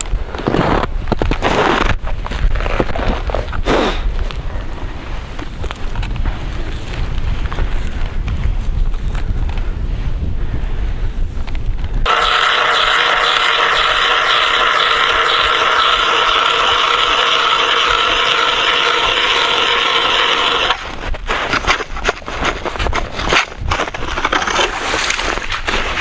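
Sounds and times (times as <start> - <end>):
ice auger grinding: 12.1 - 21.0.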